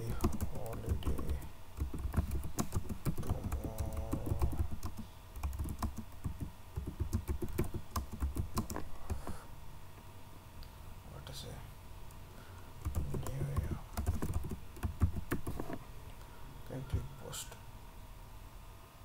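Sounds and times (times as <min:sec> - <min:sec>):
keyboard typing clicks: 0:00.0 - 0:09.4, 0:12.8 - 0:15.7.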